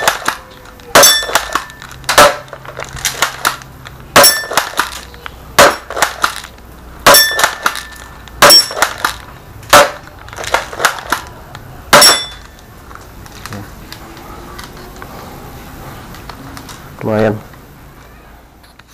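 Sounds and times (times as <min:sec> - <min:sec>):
airsoft shotgun shots: 0:00.0 - 0:05.0, 0:05.6 - 0:06.4, 0:07.0 - 0:11.2.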